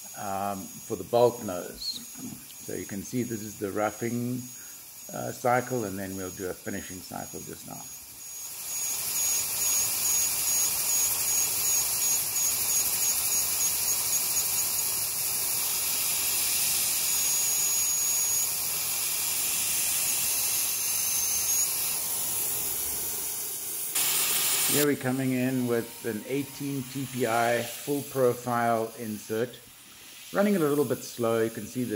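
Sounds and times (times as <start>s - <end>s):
hiss of oil spray: 0.0s - 31.9s
lathe spindle running: 8.1s - 31.9s
high cutting squeal: 15.9s - 31.9s.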